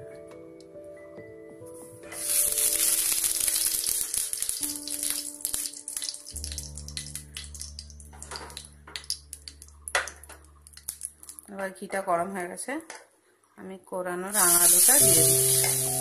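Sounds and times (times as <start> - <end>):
ghee sizzling in frying pan: 2.2 - 9.6, 14.3 - 16.0
crackles and pops: 2.2 - 11.5.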